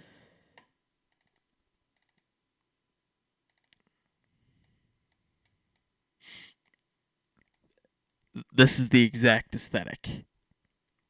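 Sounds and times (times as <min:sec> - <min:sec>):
computer mouse clicks: 0:00.6 - 0:02.3, 0:03.5 - 0:05.9, 0:06.6 - 0:07.8.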